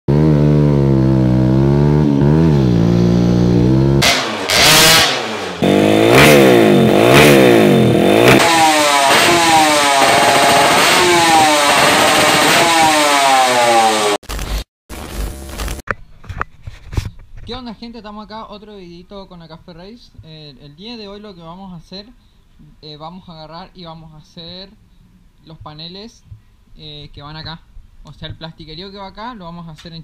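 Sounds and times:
motorcycle engine revving: 0.1s - 14.3s.

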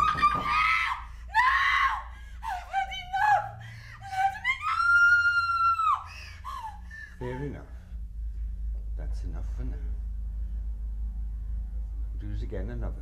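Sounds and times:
woman screaming: 0.0s - 7.1s.

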